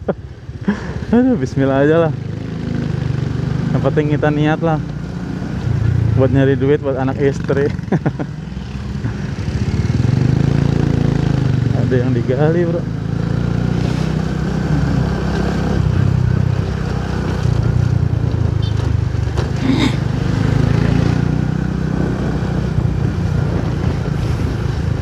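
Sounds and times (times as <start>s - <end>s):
motorcycle engine running: 0.1s - 25.0s.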